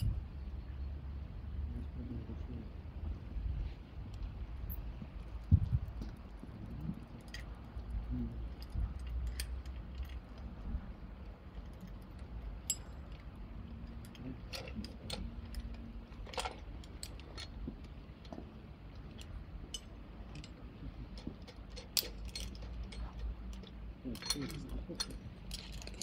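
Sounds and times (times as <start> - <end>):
low steady rumble: 0.0 - 26.0
metallic clicks of hardware: 11.6 - 26.0.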